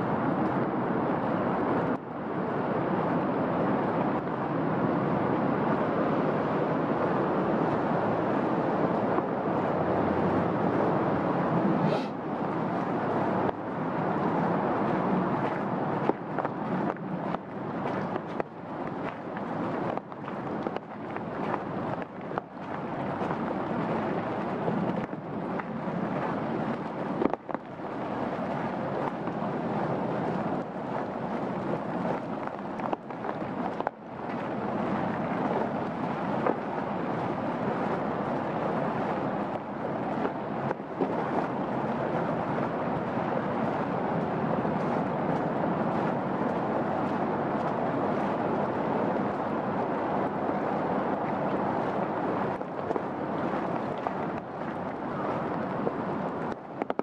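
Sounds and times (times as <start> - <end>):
rain falling on foliage: 12.8 - 37.6.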